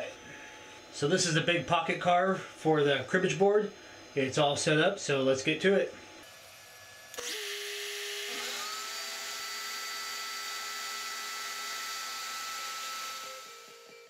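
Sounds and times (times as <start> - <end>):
router spinning with high whine: 6.2 - 14.0.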